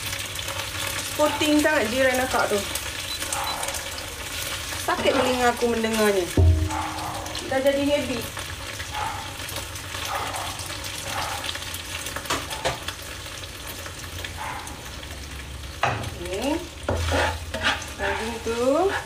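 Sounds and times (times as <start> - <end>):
beef sizzling in hot oil: 0.0 - 19.0
spatula scraping a wok: 4.2 - 7.5, 16.6 - 19.0.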